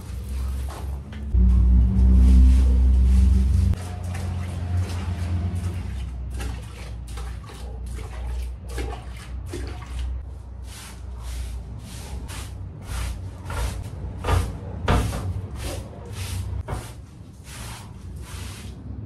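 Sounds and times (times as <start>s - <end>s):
broom scrubbing wet turf: 0.0s - 19.0s
water splashing on turf: 3.7s - 11.4s, 17.3s - 18.9s.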